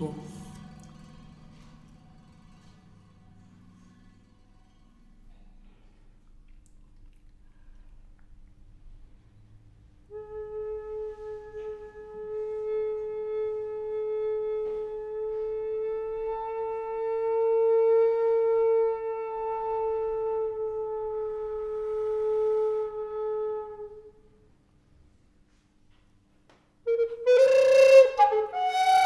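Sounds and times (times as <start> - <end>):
recorder holding a long note: 26.9 - 29.0.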